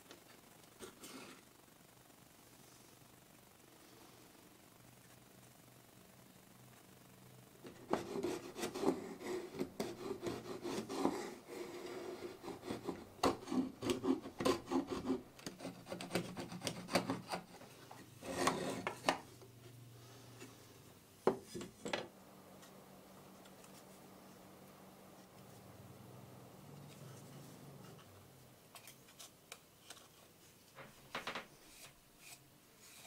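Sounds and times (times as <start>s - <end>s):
chisel scraping wooden box: 7.7s - 17.6s, 18.2s - 19.2s.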